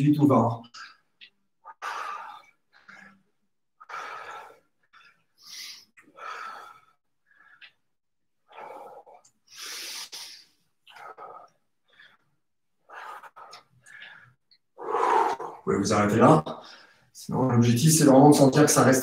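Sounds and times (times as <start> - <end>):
man breathing hard: 1.6 - 7.9, 8.5 - 15.6.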